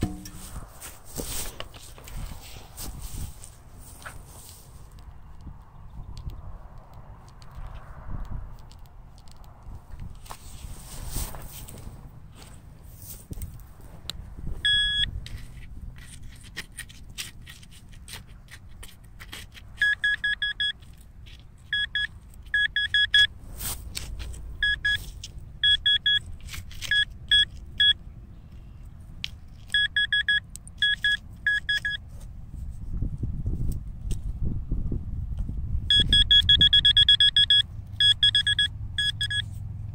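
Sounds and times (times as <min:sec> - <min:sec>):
wind rumble on microphone: 0:00.0 - 0:16.6, 0:32.1 - 0:37.8
metal detector pinpointer beeping: 0:14.6 - 0:15.4, 0:19.8 - 0:20.9, 0:21.6 - 0:23.3, 0:24.6 - 0:28.0, 0:29.7 - 0:32.0, 0:35.9 - 0:39.5
soil crunching under hand: 0:15.2 - 0:20.1.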